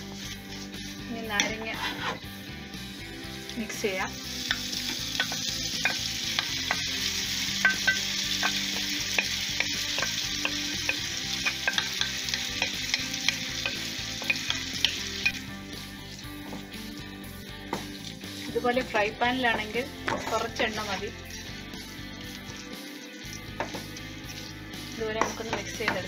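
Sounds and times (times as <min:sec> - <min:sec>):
spatula scraping pan: 0:00.0 - 0:02.3, 0:20.0 - 0:26.0
oil sizzling in frying pan: 0:00.0 - 0:26.0.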